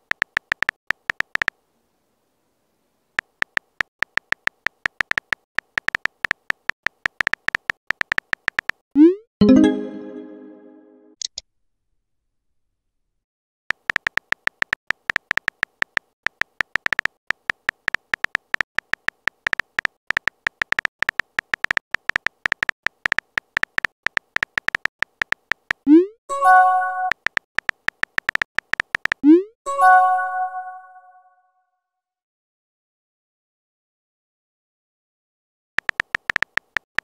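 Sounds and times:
electronic typing clicks: 0.0 - 1.5, 3.2 - 9.2, 13.7 - 29.5, 35.8 - 37.0.

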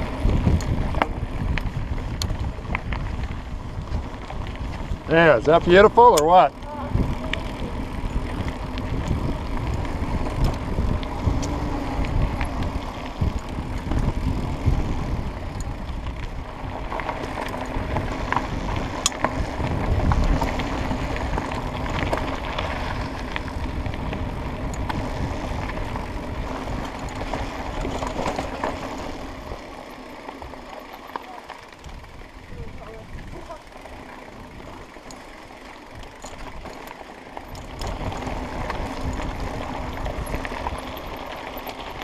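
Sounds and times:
bike clicks and rattles: 0.0 - 42.0
bike tyres rolling on dirt trail: 0.0 - 42.0.

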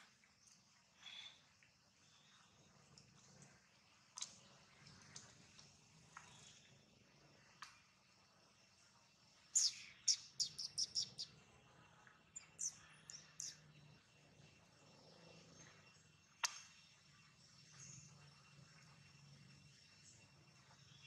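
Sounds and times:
bird chirping: 9.6 - 11.3, 12.4 - 14.0.

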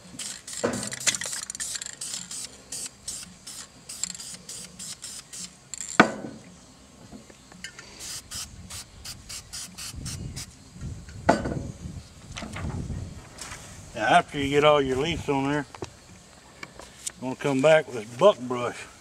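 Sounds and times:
spray can short bursts: 0.0 - 5.6, 8.0 - 10.5.

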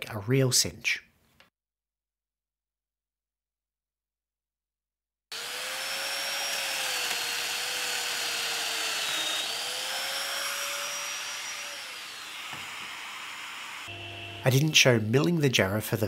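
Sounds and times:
cutter plunging into wood: 5.3 - 14.1
power joiner motor running: 5.3 - 14.8.

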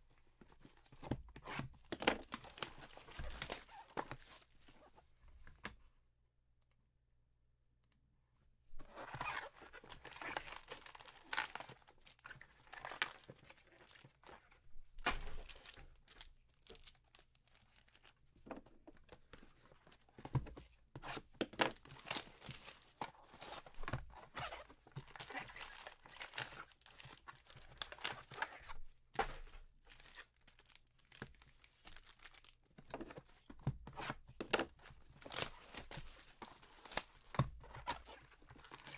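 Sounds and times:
plastic wrappers tearing and crinkling: 1.4 - 4.5, 9.0 - 18.2, 21.4 - 32.6, 34.5 - 38.9.

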